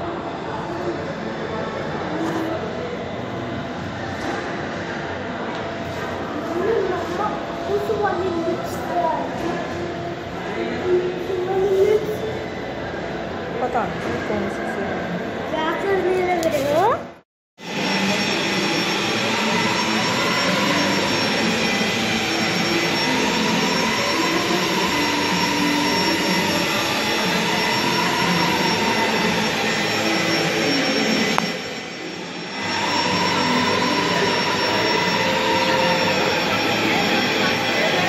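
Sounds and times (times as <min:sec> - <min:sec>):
loud rushing hall noise: 0:00.0 - 0:38.0
faint wavering tones: 0:18.0 - 0:38.0.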